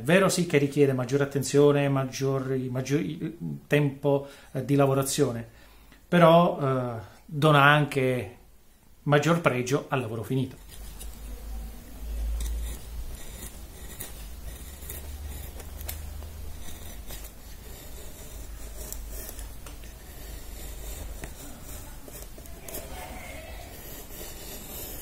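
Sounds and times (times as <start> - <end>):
hand gouge scraping wood: 12.3 - 25.0.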